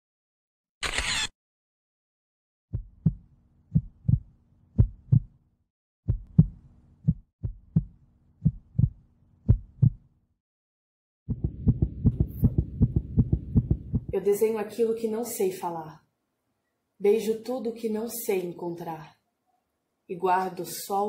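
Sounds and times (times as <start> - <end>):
heartbeat thumps: 2.7 - 5.3, 6.1 - 10.0, 11.3 - 14.2.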